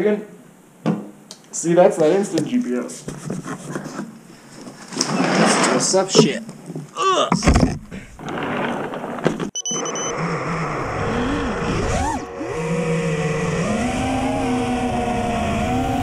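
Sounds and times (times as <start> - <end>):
quadcopter motors whining: 9.6 - 16.0.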